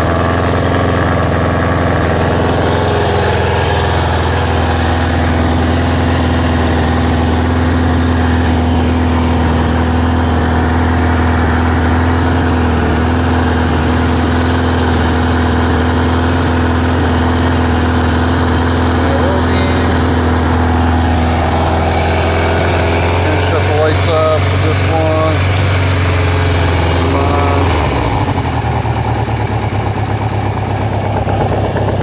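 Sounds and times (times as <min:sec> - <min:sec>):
motorcycle engine idling: 0:00.0 - 0:32.0.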